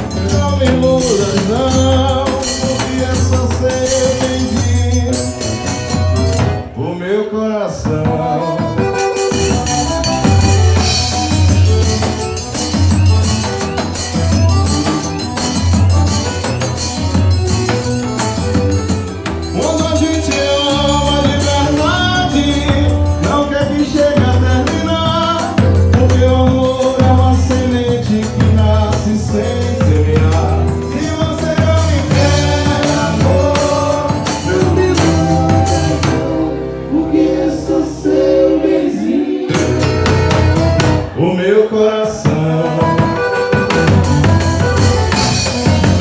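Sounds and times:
steady drum beat: 0.0 - 6.8, 7.8 - 36.6, 39.4 - 41.2, 42.3 - 46.0
accordion melody: 0.0 - 46.0
bass: 0.0 - 46.0.

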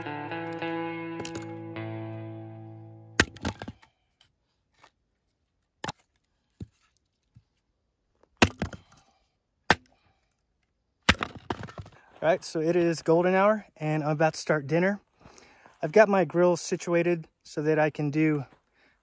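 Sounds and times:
hatchet splitting firewood: 1.2 - 1.4, 3.2 - 4.0, 5.8 - 6.9, 8.2 - 9.0, 9.6 - 10.4, 11.0 - 12.0.

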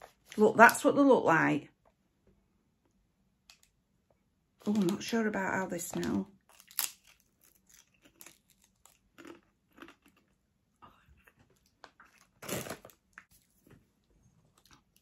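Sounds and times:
crunching of crisp being chewed: 6.4 - 15.0.

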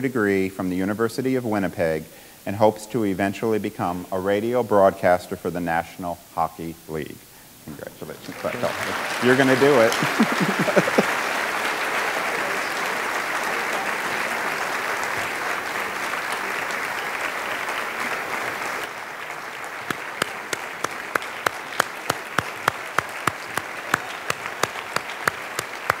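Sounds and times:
audience applauding: 8.0 - 26.0
person clapping sharply nearby: 8.3 - 19.0, 19.6 - 26.0.

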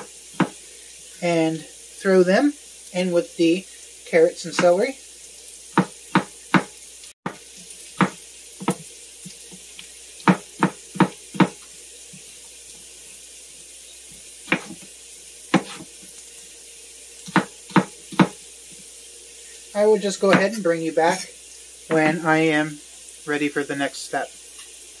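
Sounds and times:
knife chopping on cutting board: 0.0 - 0.6, 5.8 - 6.7, 8.0 - 8.8, 10.2 - 11.6, 14.5 - 14.9, 15.5 - 15.9, 17.3 - 18.4
vegetables sizzling in pan: 0.0 - 25.0.

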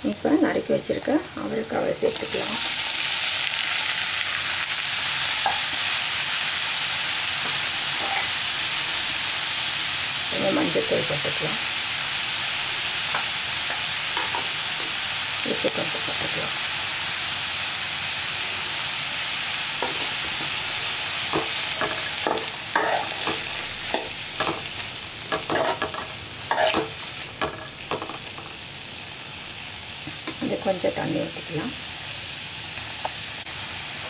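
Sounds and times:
beans sizzling in a pan: 0.0 - 34.0
spatula scraping a pan: 7.4 - 8.4, 21.3 - 24.6, 25.3 - 27.0.

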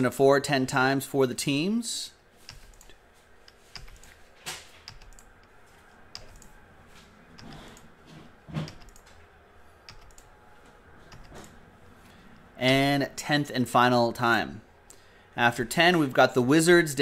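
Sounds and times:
computer mouse clicking: 2.4 - 4.2, 4.8 - 6.6, 7.3 - 7.9, 8.6 - 9.2, 9.8 - 10.3, 11.1 - 11.6.

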